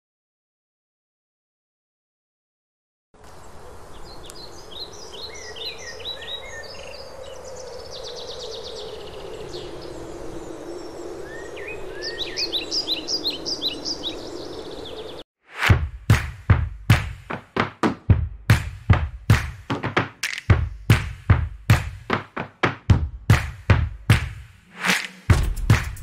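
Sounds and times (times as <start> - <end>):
songbirds chirping: 3.2 - 15.2
bird trill: 4.2 - 15.2.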